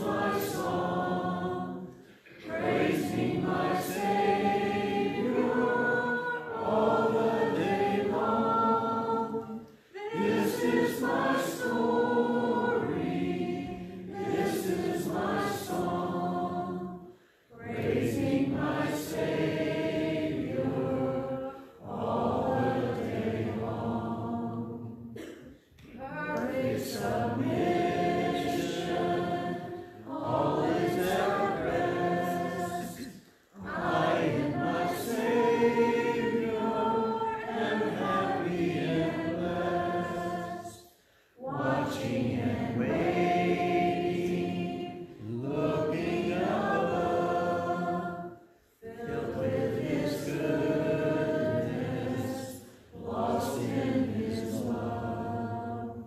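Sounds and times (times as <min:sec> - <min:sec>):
woman singing a hymn solo: 0:26.0 - 0:26.7.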